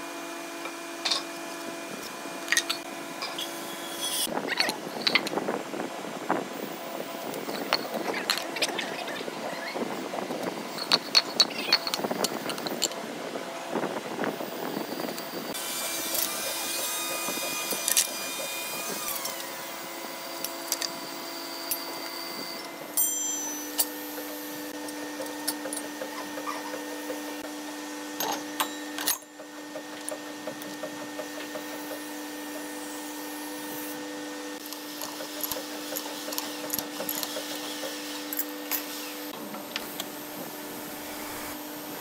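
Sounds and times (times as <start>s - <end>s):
workshop machinery humming: 0.0s - 42.0s
clinks and knocks of tools: 10.7s - 13.0s.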